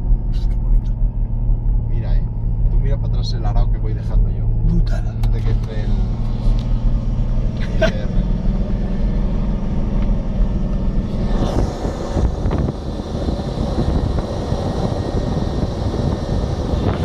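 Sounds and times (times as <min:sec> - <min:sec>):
vehicle engine droning: 0:00.0 - 0:17.0
wind noise: 0:08.8 - 0:17.0.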